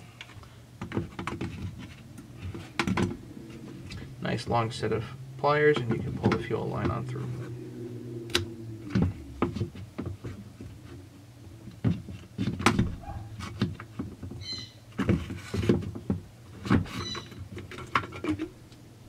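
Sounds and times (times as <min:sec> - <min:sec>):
short squeaks: 0:16.9 - 0:17.4.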